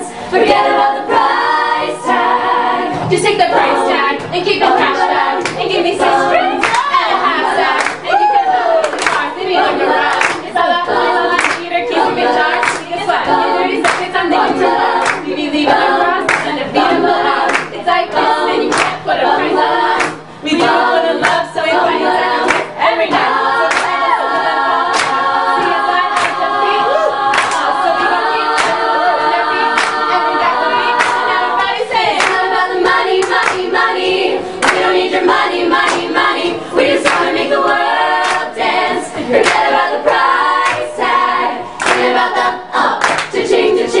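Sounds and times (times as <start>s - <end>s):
vocal group singing in harmony: 0.0s - 44.0s
hands clapping a beat: 5.4s - 8.1s, 8.8s - 24.0s, 24.9s - 26.7s, 27.3s - 28.9s, 29.7s - 36.4s, 37.0s - 38.8s, 39.4s - 41.2s, 41.8s - 44.0s.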